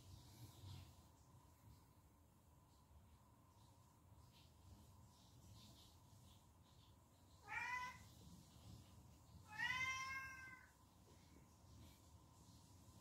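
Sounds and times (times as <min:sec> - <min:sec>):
cat meowing: 0:07.4 - 0:08.1, 0:09.4 - 0:10.8.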